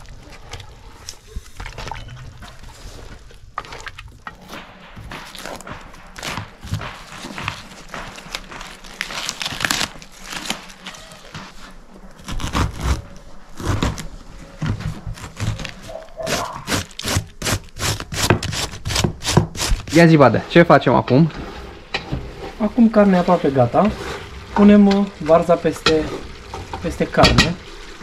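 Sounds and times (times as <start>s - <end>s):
cabbage leaves crackling and tearing: 0.0s - 20.2s
cabbage shredder rasping: 12.2s - 14.2s, 14.9s - 20.6s.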